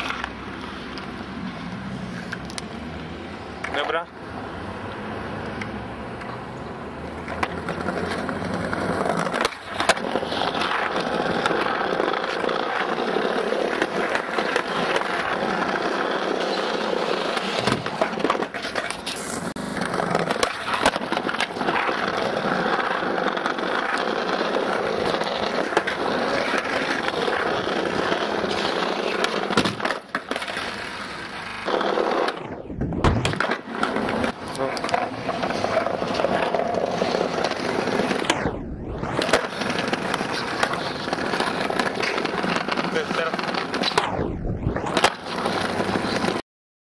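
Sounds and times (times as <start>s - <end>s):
skateboard wheels rolling on paving: 0.0s - 46.4s.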